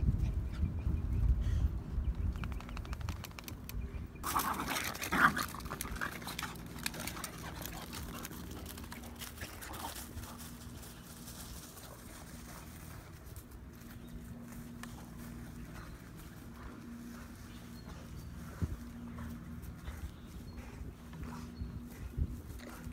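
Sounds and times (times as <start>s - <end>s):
wind on microphone: 0.0s - 4.3s, 19.9s - 22.9s
small dog growling and snarling: 4.2s - 8.3s.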